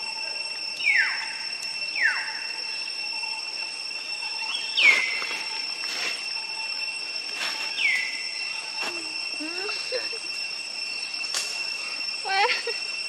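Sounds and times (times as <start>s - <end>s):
high-pitched drone: 0.0s - 13.0s.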